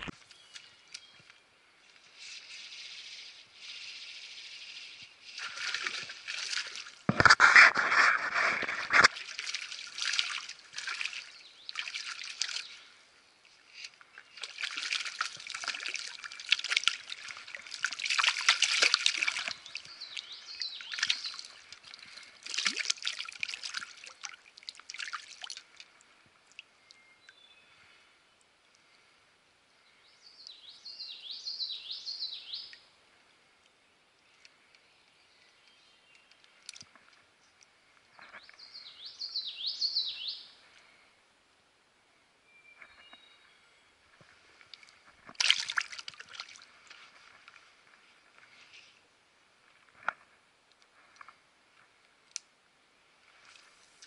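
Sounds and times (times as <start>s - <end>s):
creek water sloshing and gurgling: 2.0s - 28.0s, 44.0s - 48.6s
deep water splash: 14.4s - 19.8s, 45.4s - 46.6s.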